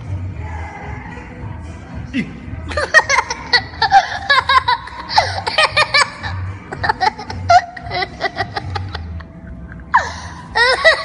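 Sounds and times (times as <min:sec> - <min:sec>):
young boy giggling: 0:02.7 - 0:11.0.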